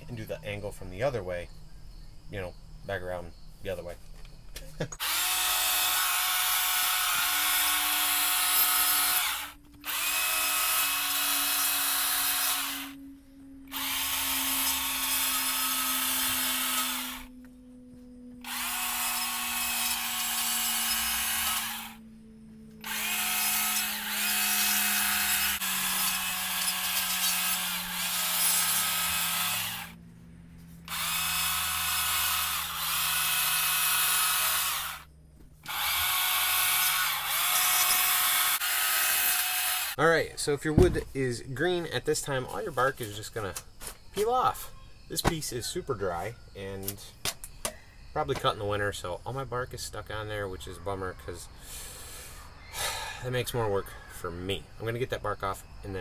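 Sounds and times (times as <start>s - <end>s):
electric chainsaw cutting wood: 5.0s - 13.0s, 13.6s - 17.6s, 18.3s - 22.1s, 22.7s - 30.0s, 30.8s - 40.0s.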